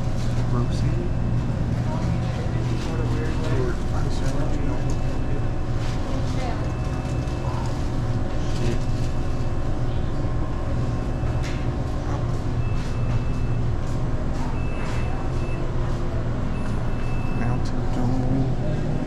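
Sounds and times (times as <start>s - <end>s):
refrigerator cooler hum: 0.0s - 19.0s
faint high-pitched beep: 16.5s - 17.6s.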